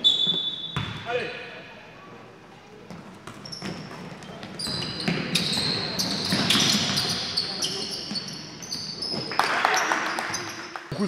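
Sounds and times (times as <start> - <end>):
sneakers squeaking on court: 0.0 - 1.1, 2.8 - 10.7
basketball bouncing: 2.9 - 7.2.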